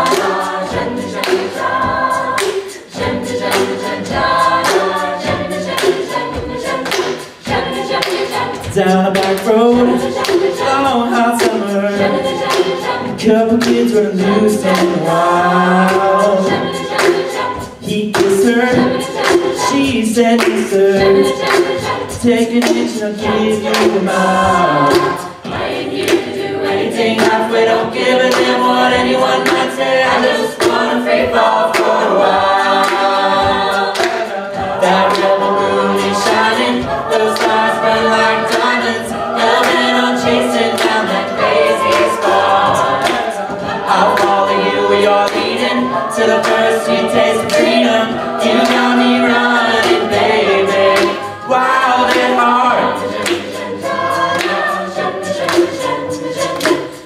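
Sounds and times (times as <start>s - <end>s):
a cappella group singing in harmony: 0.0s - 57.0s
vocal percussion beat: 0.0s - 57.0s
male lead voice singing: 8.7s - 10.0s.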